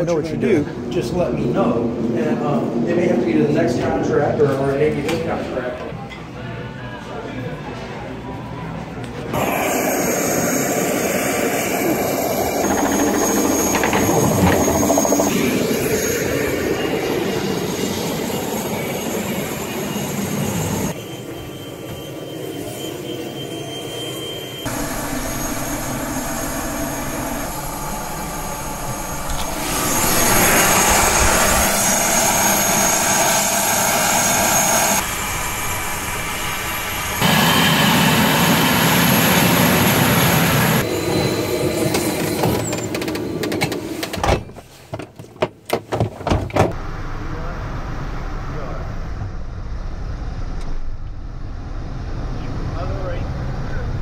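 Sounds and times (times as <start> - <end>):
jet engines running: 9.3 - 21.0, 24.6 - 43.8.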